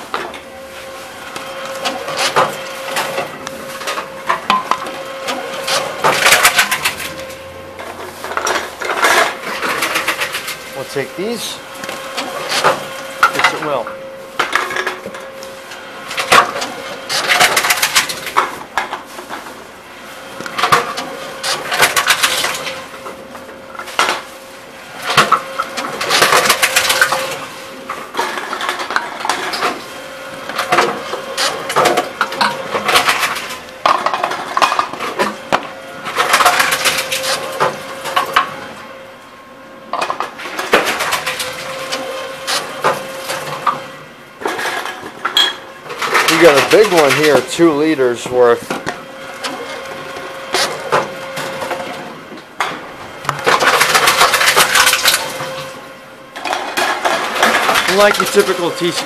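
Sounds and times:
steady machine hum: 0.0s - 59.0s
plastic bottles clattering in machine: 1.7s - 7.3s, 7.9s - 13.8s, 16.1s - 19.4s, 20.5s - 22.8s, 24.9s - 27.5s, 30.5s - 38.6s, 40.0s - 55.7s, 56.4s - 59.0s.

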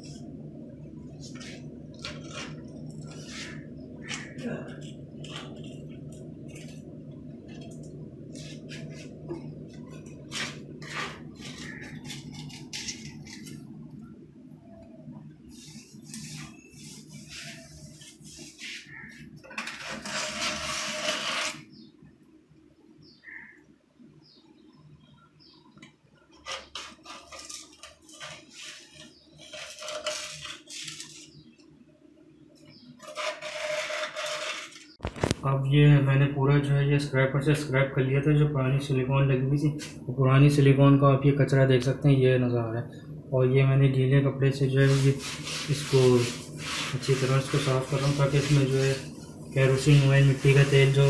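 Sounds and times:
steady low hum: 0.0s - 21.1s
paint scraper scraping sealant: 10.3s - 13.6s, 15.5s - 21.8s, 26.4s - 31.4s, 33.0s - 35.0s, 44.6s - 51.0s.

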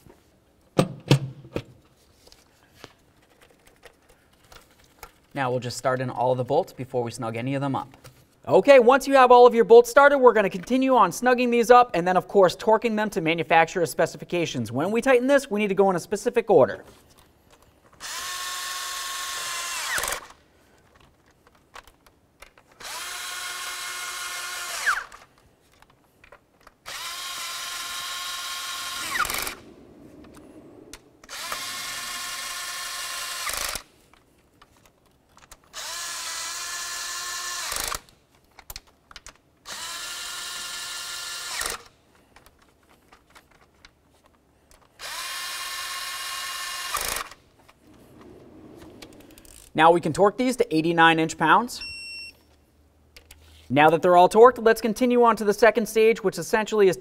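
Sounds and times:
electric ratchet motor whine: 18.0s - 20.3s, 22.8s - 25.2s, 26.9s - 29.6s, 31.2s - 33.8s, 45.0s - 47.3s.

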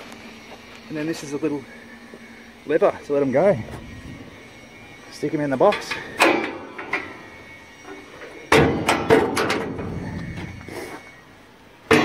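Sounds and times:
metal door slamming shut: 8.5s - 9.9s.

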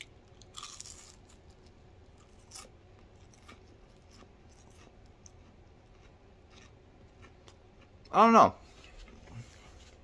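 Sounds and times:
crunching crispy fried fish: 0.0s - 2.7s.

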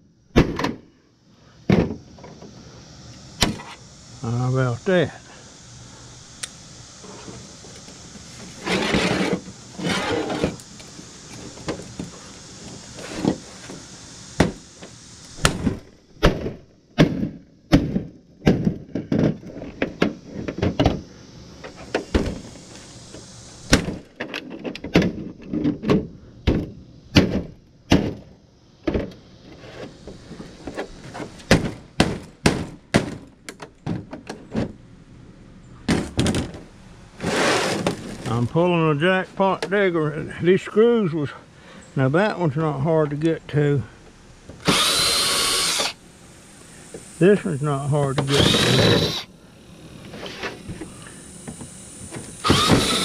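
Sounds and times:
loud noisy bursts: 44.6s - 49.9s, 50.6s - 53.0s.

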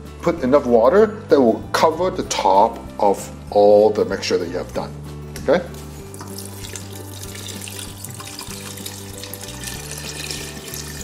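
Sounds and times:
background music: 0.0s - 11.0s
water pouring into a pot: 6.1s - 11.0s.

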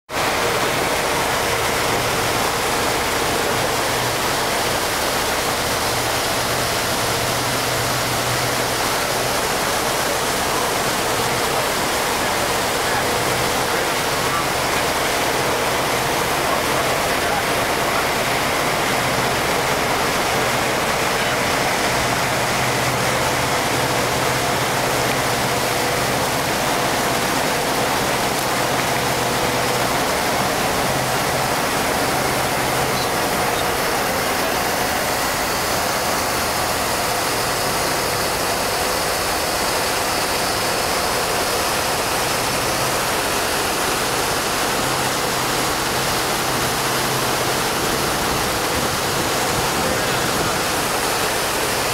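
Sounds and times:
boat motor hum: 0.1s - 51.9s
rushing water and wind: 0.1s - 51.9s.

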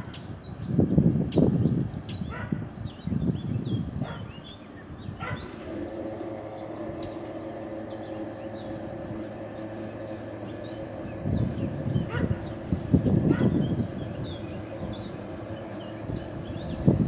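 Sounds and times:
locomotive mechanical hum: 0.0s - 17.0s
small birds chirping: 0.0s - 17.0s
dog barking: 2.3s - 2.6s, 4.0s - 4.3s, 5.2s - 5.5s.

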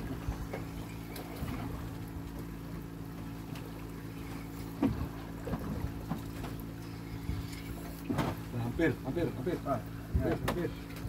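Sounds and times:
boat engine running steadily: 0.0s - 11.0s.

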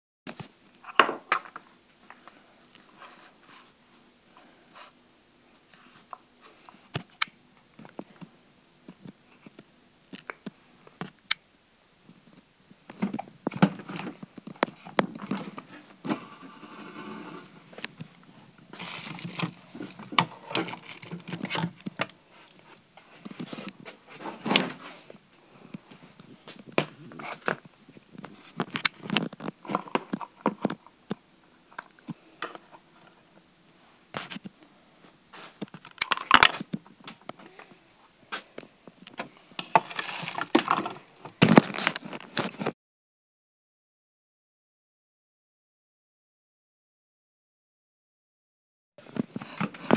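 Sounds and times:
plastic ice tray clattering: 39.6s - 41.0s.

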